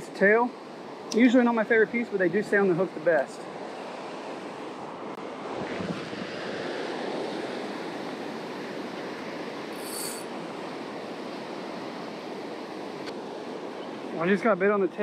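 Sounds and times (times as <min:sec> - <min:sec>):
surf breaking on beach: 0:05.4 - 0:08.7
high-pitched squeak: 0:09.8 - 0:10.3.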